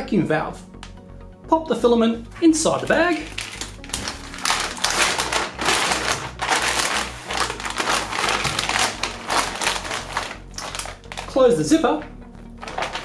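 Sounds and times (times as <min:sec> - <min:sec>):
plastic bag crinkling: 0:02.6 - 0:11.8, 0:12.5 - 0:13.0.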